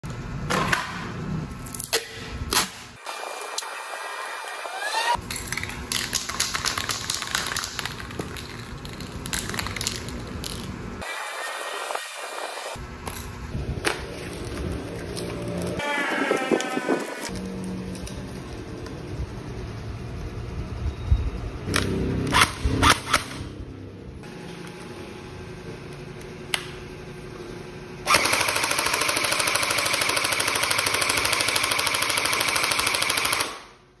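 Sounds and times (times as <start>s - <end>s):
toy blaster firing full auto: 28.1s - 33.8s.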